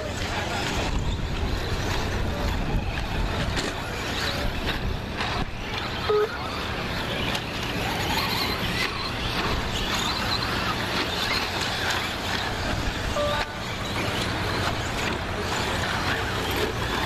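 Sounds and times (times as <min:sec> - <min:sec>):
rc truck motors whining: 0:00.0 - 0:17.0
short beep: 0:13.1 - 0:13.8.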